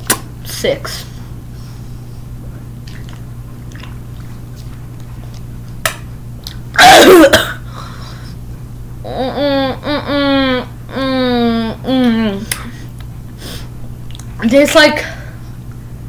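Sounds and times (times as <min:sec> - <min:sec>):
person coughing harshly: 0:06.8 - 0:07.7.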